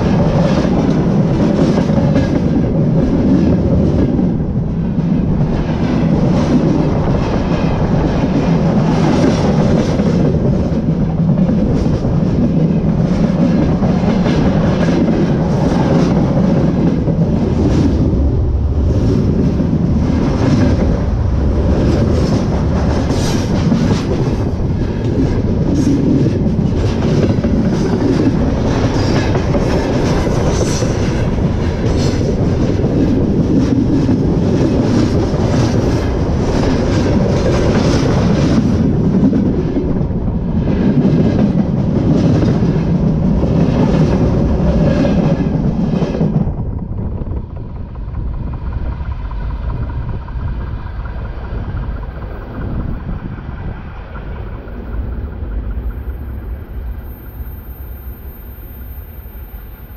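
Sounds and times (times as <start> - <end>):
freight cars rumbling: 0.0 - 59.9
train wheels clattering on rails: 0.0 - 59.9.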